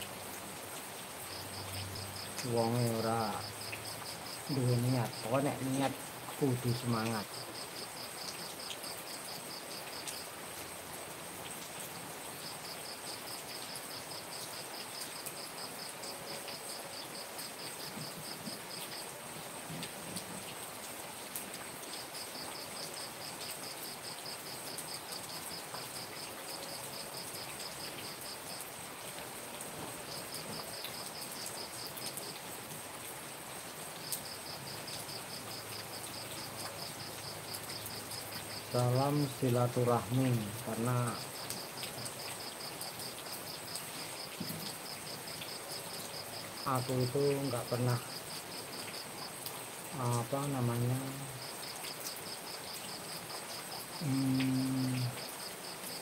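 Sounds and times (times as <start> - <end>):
steady rain falling: 0.0 - 56.0
insect trilling: 50.0 - 55.4.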